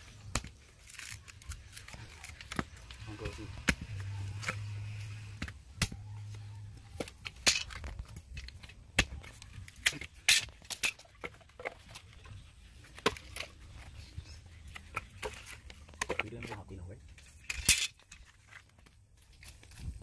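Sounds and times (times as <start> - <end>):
wood pieces clattering together: 7.1 - 12.3, 14.7 - 19.8.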